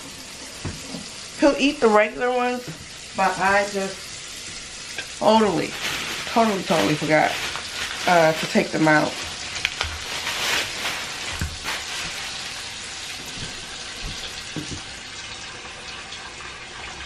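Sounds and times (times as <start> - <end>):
water running from tap: 0.0 - 17.0
soft knocks: 13.4 - 14.9.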